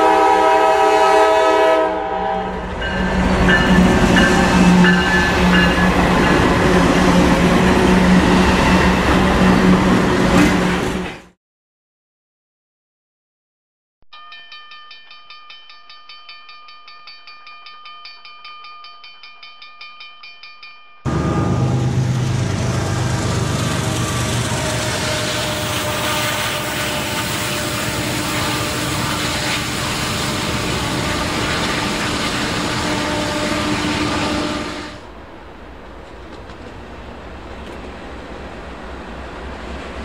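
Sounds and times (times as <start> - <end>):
diesel locomotive engine drone: 0.0 - 11.3, 21.1 - 40.0
train rumble: 0.0 - 11.3, 21.1 - 40.0.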